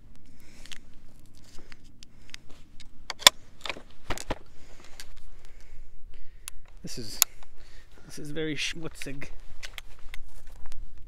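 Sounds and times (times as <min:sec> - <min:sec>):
rifle bolt action clicking: 0:02.8 - 0:04.4.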